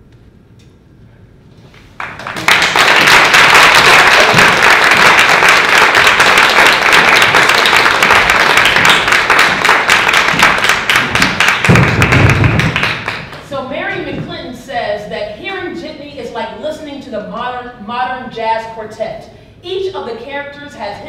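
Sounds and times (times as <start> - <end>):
audience applauding: 1.9 - 13.4.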